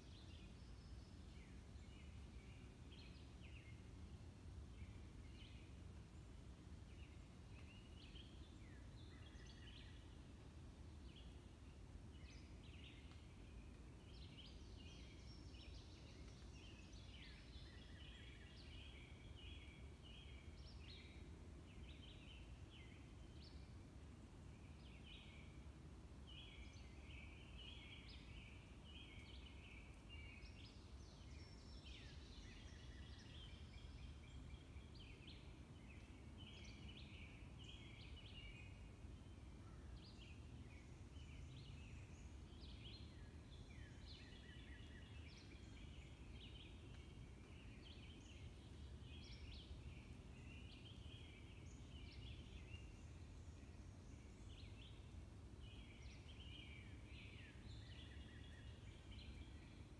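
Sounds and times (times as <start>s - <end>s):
songbirds chirping and trilling: 0.0s - 59.9s.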